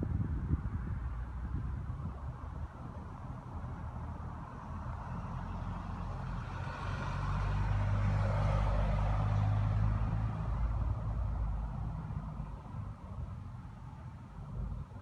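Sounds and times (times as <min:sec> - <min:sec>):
vehicle driving past: 0:03.8 - 0:12.7.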